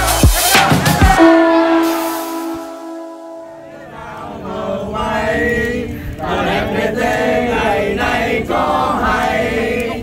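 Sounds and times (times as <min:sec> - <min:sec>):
group chanting in unison: 0:03.6 - 0:10.0.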